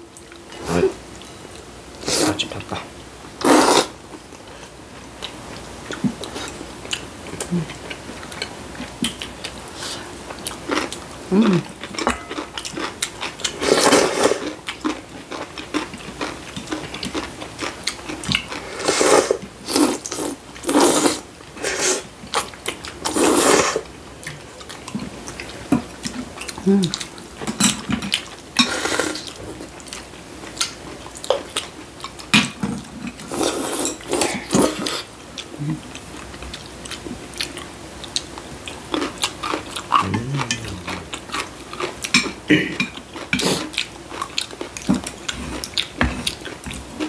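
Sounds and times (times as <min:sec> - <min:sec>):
slurping noodles: 0:03.4 - 0:04.0, 0:13.6 - 0:14.5, 0:18.6 - 0:22.1, 0:23.1 - 0:23.8
chewing: 0:04.3 - 0:18.9, 0:24.2 - 0:47.0.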